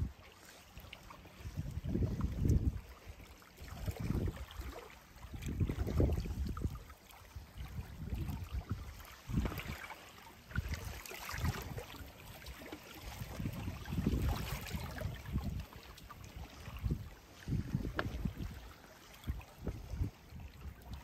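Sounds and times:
wind buffeting microphone: 0:01.3 - 0:09.8, 0:13.0 - 0:21.0.

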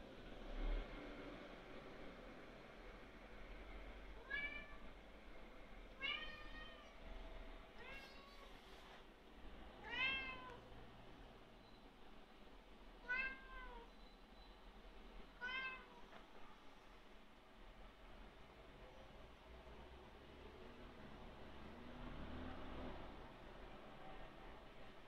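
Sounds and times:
cat meowing: 0:04.2 - 0:05.0, 0:06.0 - 0:07.0, 0:07.8 - 0:08.6, 0:09.8 - 0:10.7, 0:13.0 - 0:13.9, 0:15.4 - 0:16.1.

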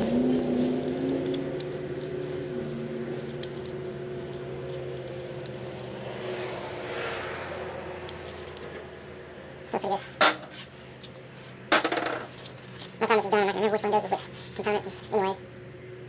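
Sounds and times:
metal parts clicking and tapping: 0:02.9 - 0:06.5, 0:07.6 - 0:08.7, 0:10.2 - 0:12.9.

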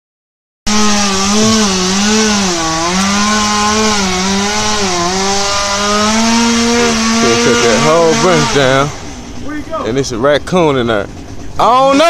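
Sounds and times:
chainsaw cutting tree: 0:00.7 - 0:09.2.

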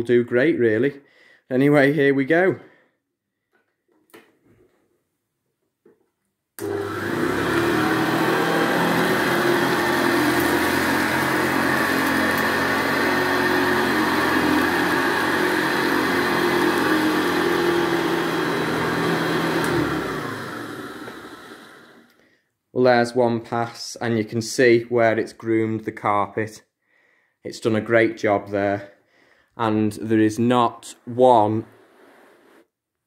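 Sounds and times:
vacuum cleaner humming on carpet: 0:06.6 - 0:22.0
vacuum cleaner switch: 0:06.6 - 0:22.1.

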